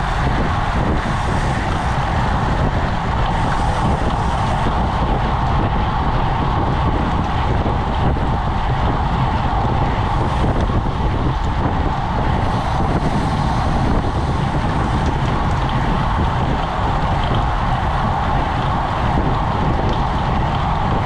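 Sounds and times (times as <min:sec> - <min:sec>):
road tyres humming on asphalt: 0:00.0 - 0:21.0
wind buffeting microphone: 0:00.0 - 0:21.0.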